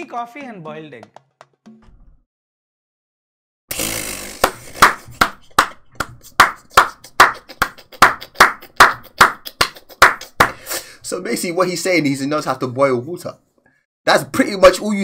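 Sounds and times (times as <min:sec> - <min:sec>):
person clapping hands: 0:01.0 - 0:01.6, 0:04.4 - 0:10.6.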